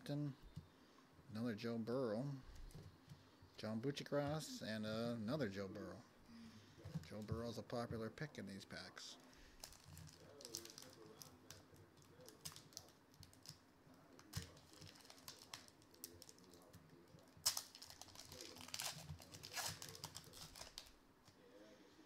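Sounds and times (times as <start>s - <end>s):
plastic wrapper crinkling: 9.6s - 13.6s, 14.2s - 21.0s.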